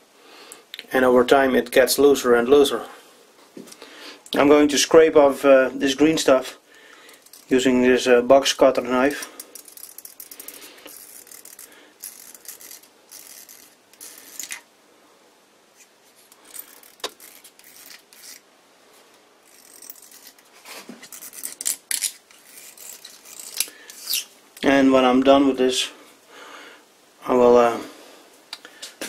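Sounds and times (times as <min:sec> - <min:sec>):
blade scraping metal: 0:16.2 - 0:18.4, 0:19.4 - 0:24.3.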